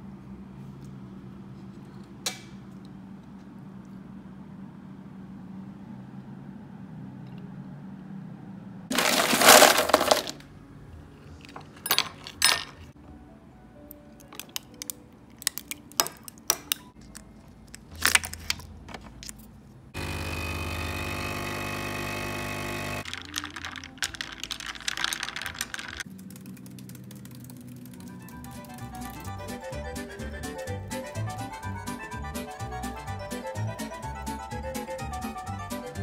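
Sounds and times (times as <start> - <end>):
loud scraping: 8.9 - 10.4
objects clinking and rustling: 8.9 - 10.4, 11.4 - 13.0, 23.0 - 26.1
soft background music: 10.4 - 18.0, 27.7 - 36.0
steady machine hum: 20.0 - 23.0.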